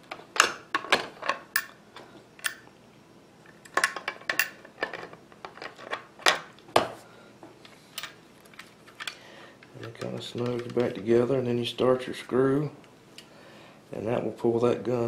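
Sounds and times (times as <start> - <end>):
metallic clicks of rifle parts: 8.0 - 11.1.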